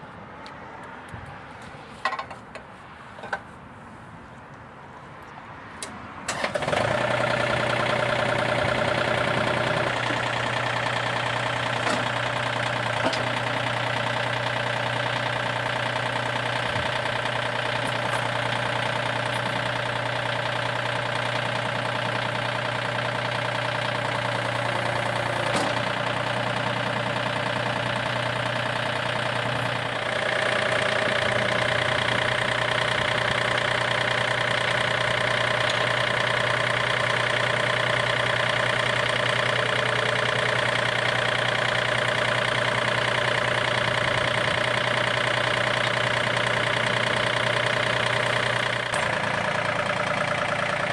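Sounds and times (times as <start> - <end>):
tractor diesel engine idling: 5.8 - 50.9.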